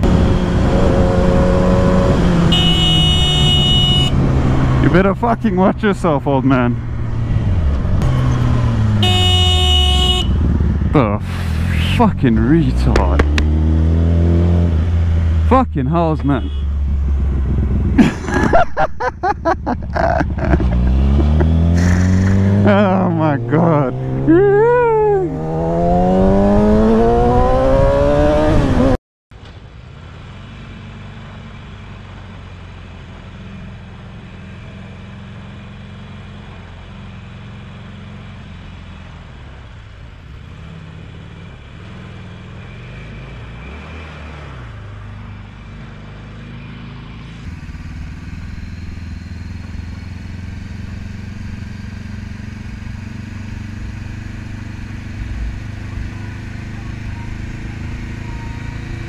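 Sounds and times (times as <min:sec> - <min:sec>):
motorcycle engine revving: 0:00.0 - 0:05.7, 0:06.4 - 0:15.6, 0:16.3 - 0:18.6, 0:19.6 - 0:29.0, 0:40.5 - 0:59.0
motorcycle engine running steadily: 0:02.5 - 0:04.1, 0:09.0 - 0:11.2, 0:16.2 - 0:18.6, 0:45.4 - 0:59.0.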